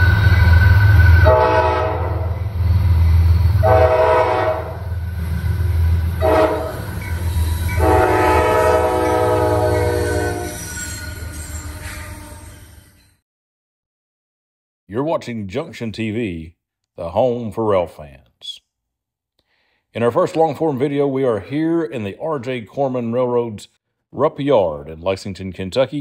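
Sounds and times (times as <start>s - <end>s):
passing train rumble: 0.0s - 12.9s
locomotive air horn blasts: 0.8s - 2.5s, 3.6s - 4.9s, 6.2s - 6.9s, 7.8s - 10.6s.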